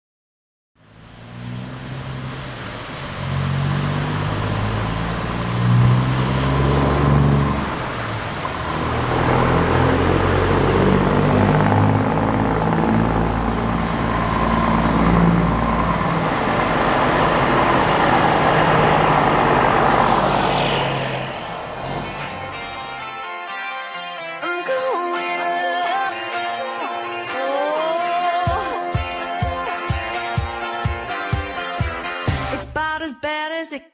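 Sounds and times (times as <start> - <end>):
truck accelerating past: 0.8 - 23.2.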